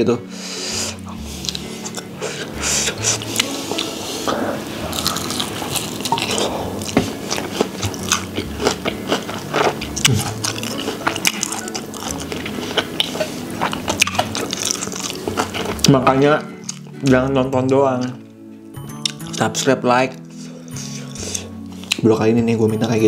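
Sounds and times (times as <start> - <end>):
crunchy chewing of fried chicken: 1.0 - 17.2.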